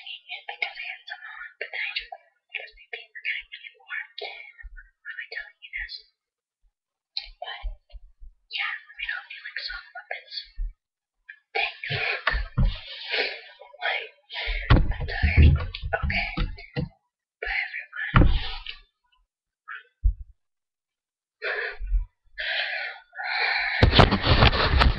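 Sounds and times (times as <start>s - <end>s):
handling knocks and thumps: 14.6s - 17.0s, 18.2s - 18.6s.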